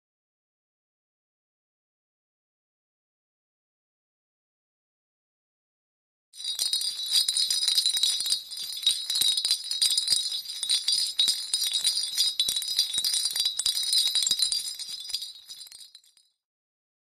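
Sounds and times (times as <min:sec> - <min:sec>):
sleigh bells jingling: 0:06.4 - 0:16.2.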